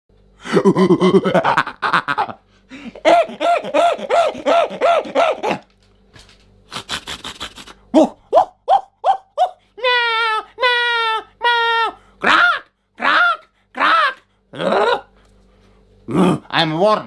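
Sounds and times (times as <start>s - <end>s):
laugh-like yelps: 0.5s - 5.6s, 6.8s - 15.1s
man doing animal impression: 2.8s - 5.7s, 6.7s - 15.2s, 16.1s - 16.6s.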